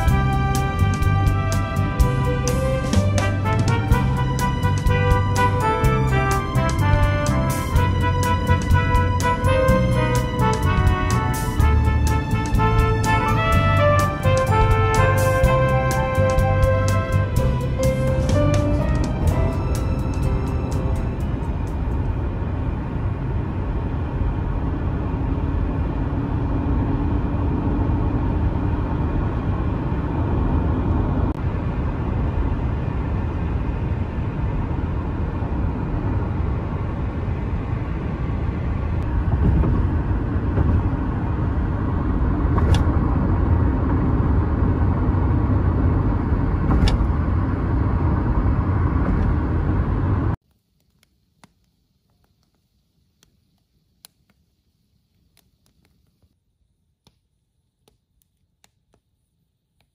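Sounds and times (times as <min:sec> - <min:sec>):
car road and engine noise: 0:00.0 - 0:50.4.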